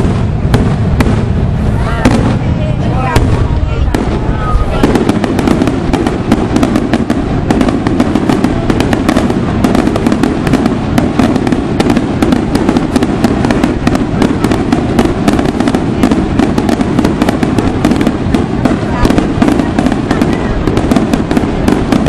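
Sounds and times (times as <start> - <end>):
continuous rumble: 0.0 - 22.0
fireworks bangs and crackles: 0.0 - 22.0.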